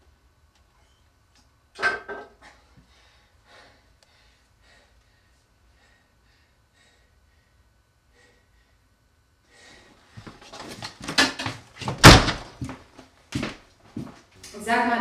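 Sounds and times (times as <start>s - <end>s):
door slamming shut: 12.0s - 12.6s.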